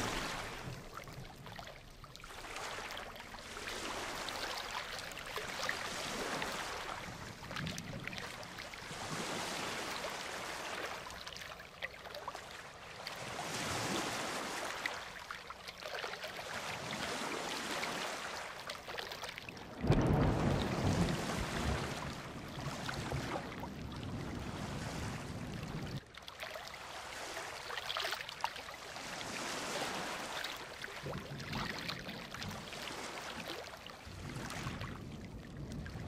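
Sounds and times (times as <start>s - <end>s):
ocean surf washing onto beach: 0.0s - 1.4s, 2.4s - 11.1s, 19.5s - 26.0s.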